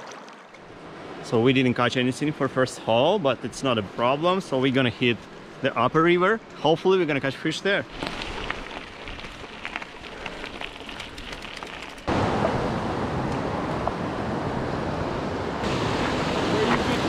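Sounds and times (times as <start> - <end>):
bike tyres crunching on gravel: 7.8 - 12.1
bike clicks and rattles: 7.9 - 12.1
rushing river noise: 12.1 - 17.0.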